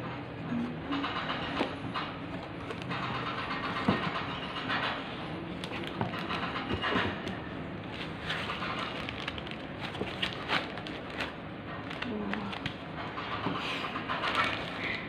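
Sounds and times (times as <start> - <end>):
plastic bag crinkling: 7.9 - 12.8.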